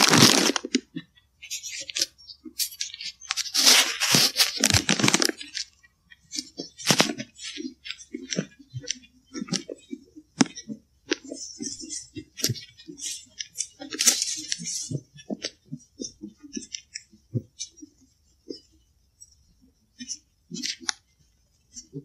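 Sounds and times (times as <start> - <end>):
footsteps on dry leaves and twigs: 0.0 - 0.7, 3.4 - 5.4
leaf rustling: 3.4 - 5.4.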